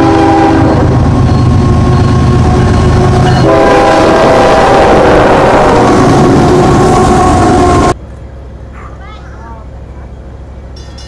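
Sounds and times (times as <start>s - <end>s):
train air horn: 0.0s - 1.1s, 2.5s - 8.0s
diesel locomotive engine rumble: 0.0s - 11.0s.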